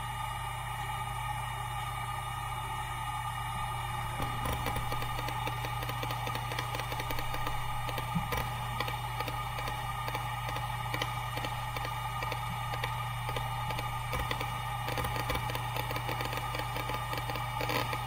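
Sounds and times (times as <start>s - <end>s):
hard disk drive humming: 0.0s - 18.0s
hard disk seek ticks: 3.9s - 18.0s.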